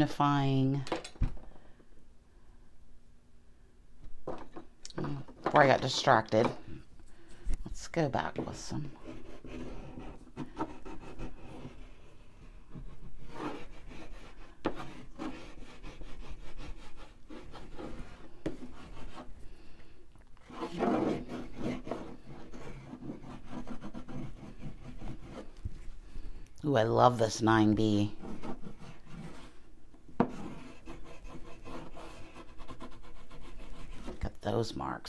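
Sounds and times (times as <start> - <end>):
graphite scratching on paper: 8.4 - 19.3, 20.4 - 25.6, 27.9 - 29.6, 30.2 - 34.3.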